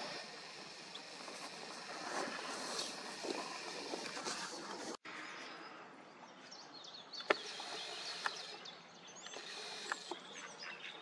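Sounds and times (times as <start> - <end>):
steady outdoor hiss: 0.0 - 11.0
small birds chirping: 2.6 - 11.0.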